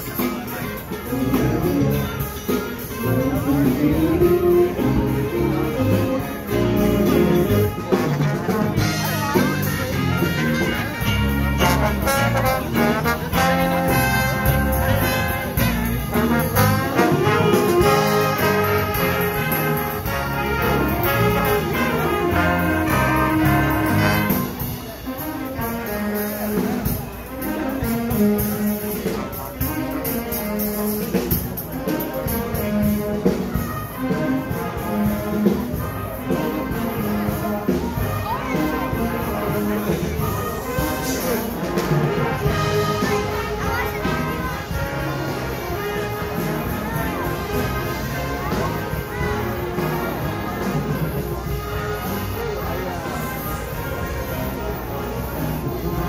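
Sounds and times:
live band with saxophone and brass: 0.0 - 56.0.

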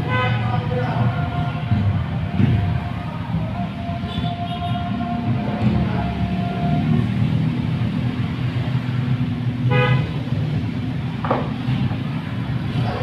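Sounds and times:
vehicle horn toot: 0.0 - 0.6, 4.1 - 4.8, 9.7 - 10.2
traffic engine rumble: 0.0 - 13.0.

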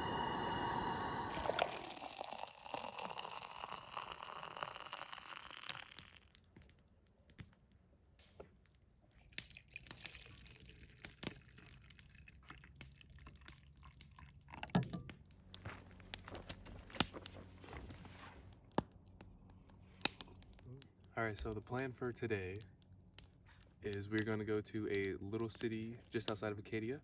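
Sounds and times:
coffee pouring into a mug: 0.0 - 6.3, 9.3 - 14.9
hot water pouring into glass: 0.0 - 6.4, 9.3 - 14.9.

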